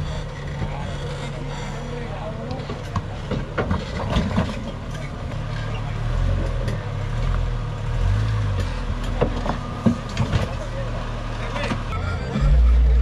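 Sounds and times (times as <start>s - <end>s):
engine revving under load: 3.8s - 13.0s.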